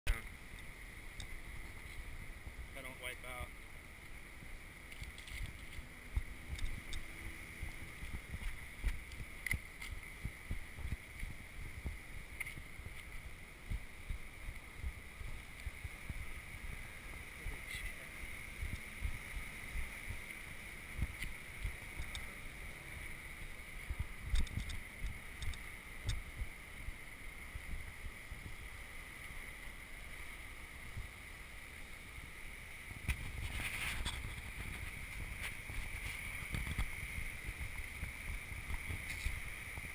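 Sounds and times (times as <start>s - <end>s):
faint high hum: 0.1s - 39.9s.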